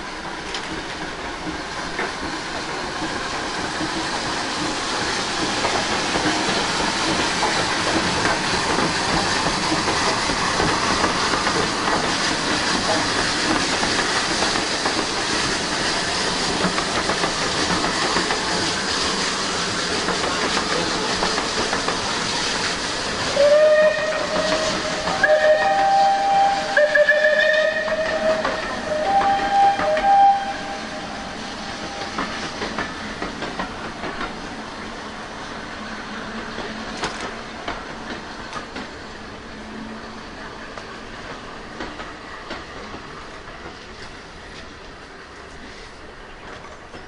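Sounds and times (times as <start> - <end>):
steam train hiss and rumble: 0.0 - 47.0
steam locomotive whistle: 23.3 - 31.5.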